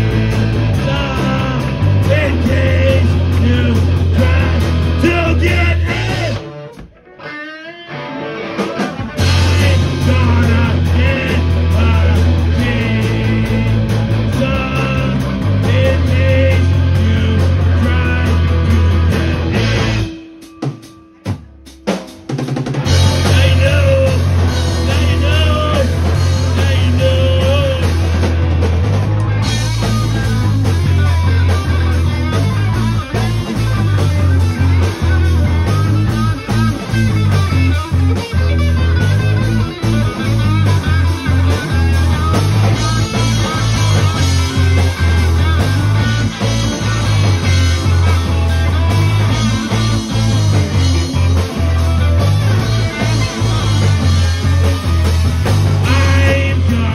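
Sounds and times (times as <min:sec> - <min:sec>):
live rock band playing: 0:00.0 - 0:56.9.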